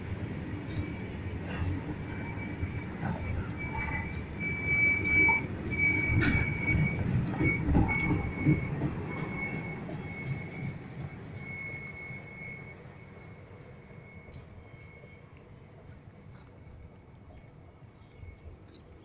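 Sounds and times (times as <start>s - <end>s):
train wheel squeal: 0.0s - 17.1s
freight train rumbling: 0.0s - 19.0s.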